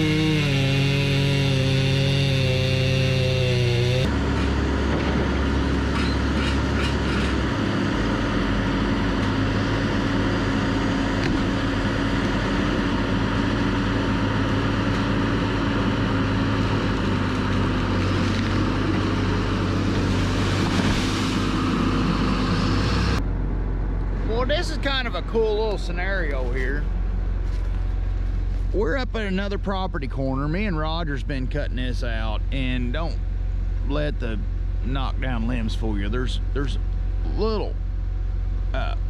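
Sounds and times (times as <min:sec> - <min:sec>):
disc saw cutting tree: 0:00.0 - 0:04.6
diesel engine and hydraulics running: 0:00.0 - 0:39.0.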